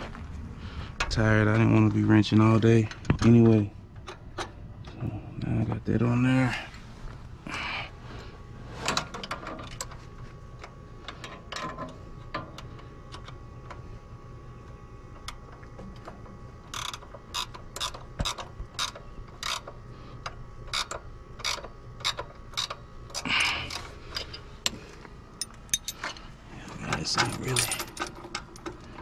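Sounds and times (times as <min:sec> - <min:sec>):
ratchet wrench clicking: 0:16.7 - 0:19.8, 0:20.7 - 0:24.3.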